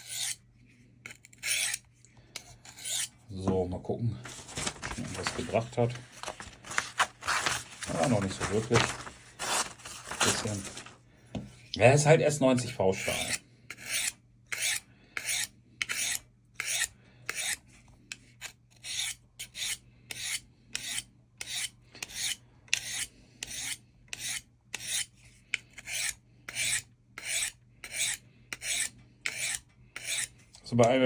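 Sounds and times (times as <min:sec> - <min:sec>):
knife rasping on sharpening rod: 0:00.0 - 0:00.4, 0:01.1 - 0:01.8, 0:02.4 - 0:03.2, 0:13.1 - 0:17.6, 0:18.4 - 0:25.1, 0:25.7 - 0:30.3.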